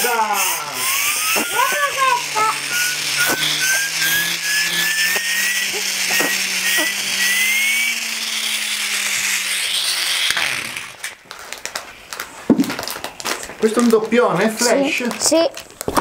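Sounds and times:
child blowing into toy: 0:00.0 - 0:08.1
toy turbine whirring and whistling: 0:00.0 - 0:12.2
foil packet crinkling: 0:11.0 - 0:16.0.

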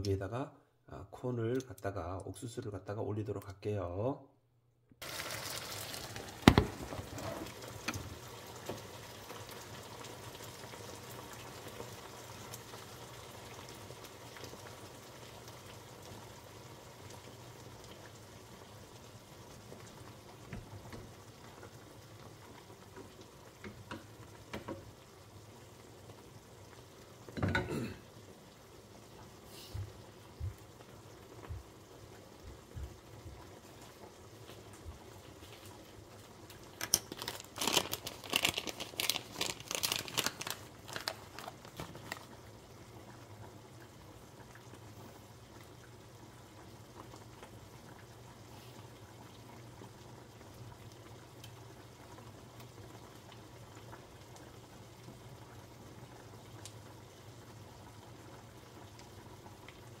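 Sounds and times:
corn crackling in butter: 0:05.0 - 0:16.2, 0:35.5 - 0:42.5.

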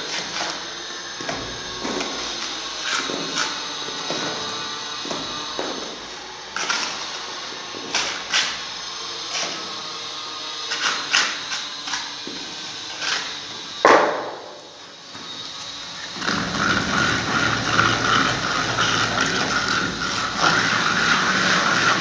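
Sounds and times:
trowel scraping mortar: 0:00.0 - 0:22.0
trowel knock: 0:13.9 - 0:14.4.

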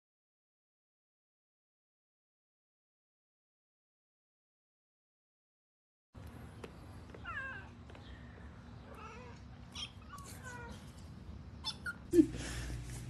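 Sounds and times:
cats meowing: 0:07.2 - 0:07.8, 0:08.8 - 0:11.0.

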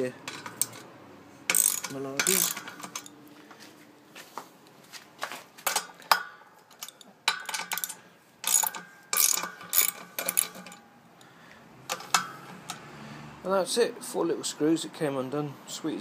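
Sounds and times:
metal clicking and scraping: 0:00.1 - 0:03.2, 0:05.6 - 0:10.9, 0:11.9 - 0:12.9.

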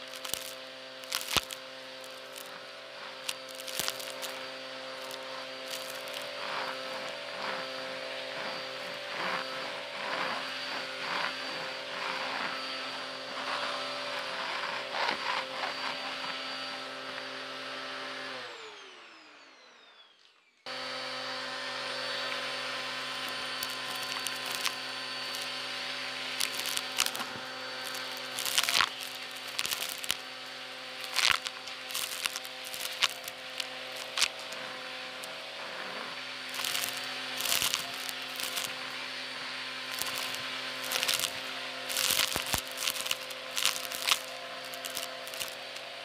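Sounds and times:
debris crackling in vacuum: 0:00.0 - 0:12.8, 0:22.1 - 0:46.0
vacuum cleaner running: 0:00.0 - 0:46.0
vacuum motor winding down: 0:00.0 - 0:46.0.

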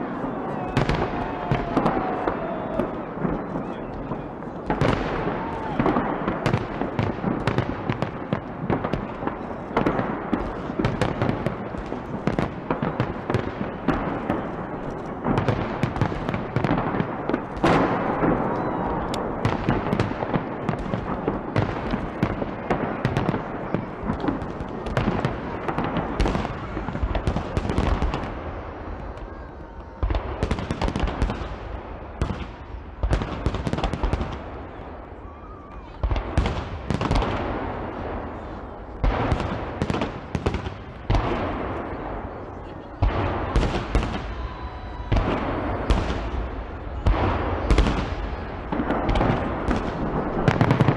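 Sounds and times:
fireworks bursting and crackling: 0:00.0 - 0:50.9.

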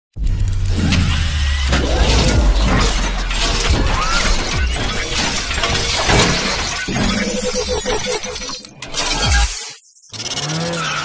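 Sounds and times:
music: 0:00.1 - 0:09.5
crashing shattering hits: 0:01.7 - 0:07.4.

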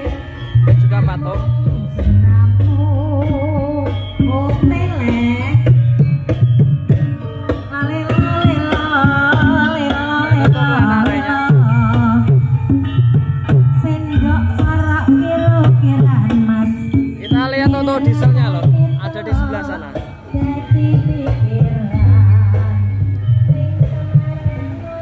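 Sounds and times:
loud music over speakers: 0:00.0 - 0:25.0
heavy bass line: 0:00.6 - 0:07.3, 0:14.3 - 0:25.0.

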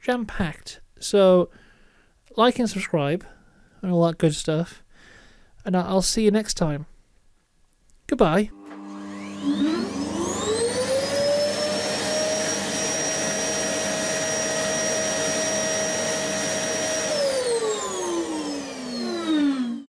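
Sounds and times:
vacuum cleaner motor whine: 0:08.5 - 0:19.9.

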